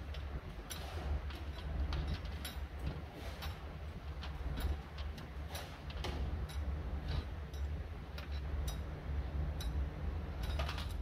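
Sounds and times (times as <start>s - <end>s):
steady low hum: 0.0s - 11.0s
metal bolts clinking: 9.5s - 11.0s.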